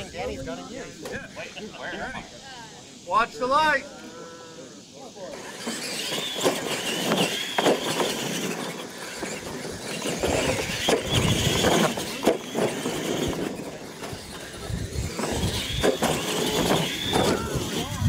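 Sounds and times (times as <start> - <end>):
toy car motors whining: 4.0 - 18.0
tyres bouncing over dirt: 5.4 - 18.0.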